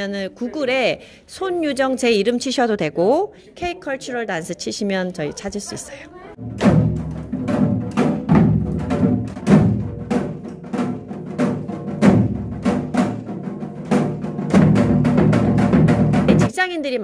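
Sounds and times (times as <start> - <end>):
hourglass drums beaten with sticks: 6.4 - 16.5.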